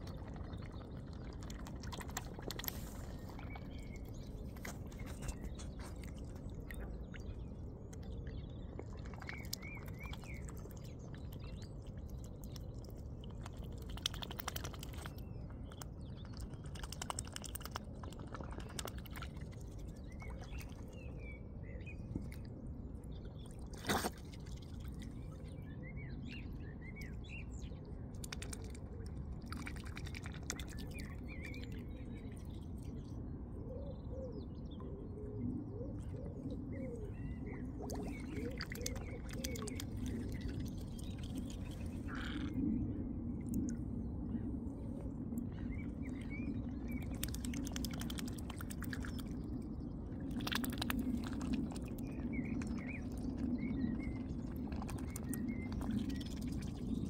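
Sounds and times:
low wash of water: 0.0s - 57.0s
swan bill splashing in water: 13.4s - 15.2s, 23.4s - 25.0s, 47.0s - 49.4s, 50.3s - 52.0s.

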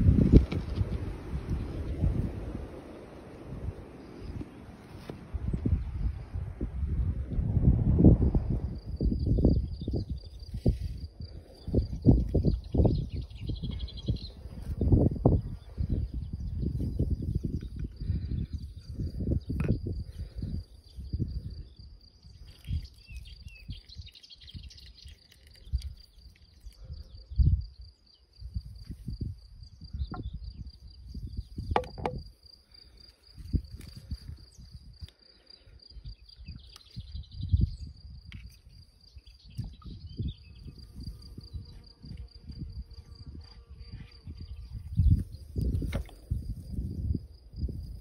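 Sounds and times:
low rumbles and thumps: 31.6s - 32.3s.

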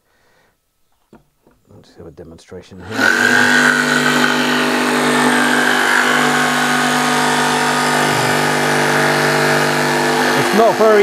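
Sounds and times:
jigsaw motor whine: 2.8s - 11.0s
saw blade rasping in wood: 2.8s - 11.0s.

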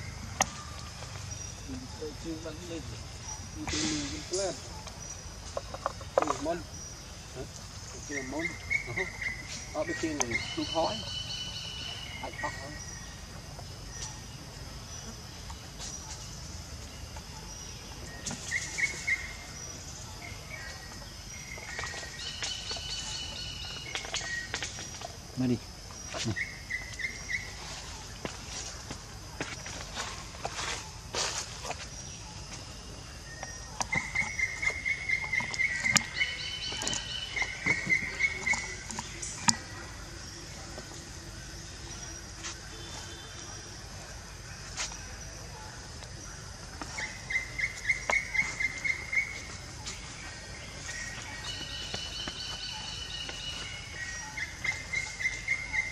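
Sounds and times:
birds chirping: 0.0s - 55.9s
insects calling: 0.0s - 55.9s.

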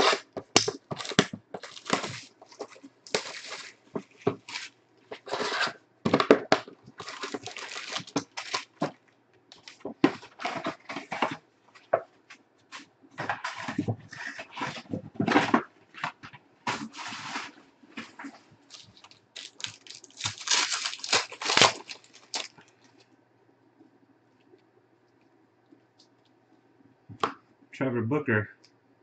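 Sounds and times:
foil packs rustling: 0.0s - 12.0s, 16.7s - 23.0s
plastic shrink wrap crinkling: 0.0s - 12.0s, 16.7s - 23.0s.

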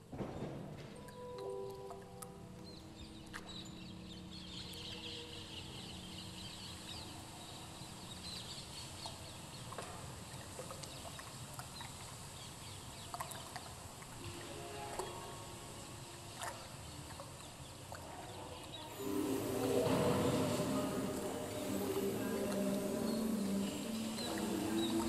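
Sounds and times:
soft held low tone: 18.9s - 25.0s.

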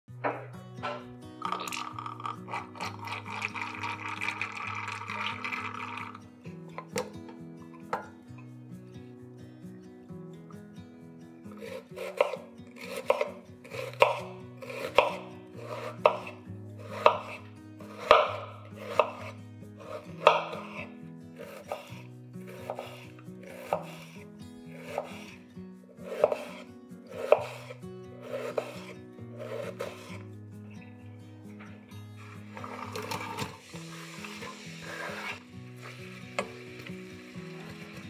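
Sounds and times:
knife chopping on cutting board: 11.6s - 24.2s, 24.8s - 25.3s, 26.0s - 30.2s.

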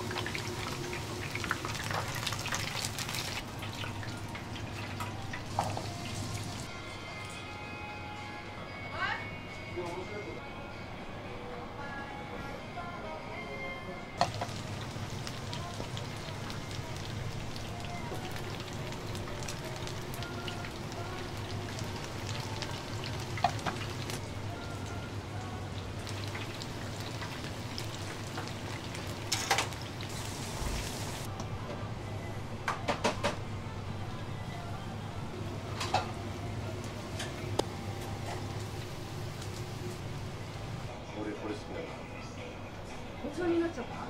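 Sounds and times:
oil sizzling in fryer: 0.0s - 6.7s, 14.2s - 31.3s, 36.9s - 40.9s.

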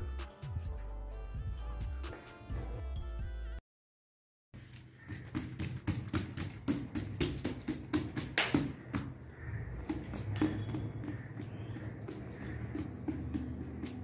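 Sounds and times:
irregular tapping and knocking: 4.6s - 14.0s.

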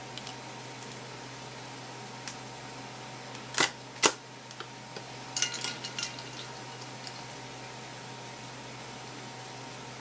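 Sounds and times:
faint steady hum: 0.0s - 10.0s
ice cubes clinking in metal bowl: 5.4s - 7.2s.

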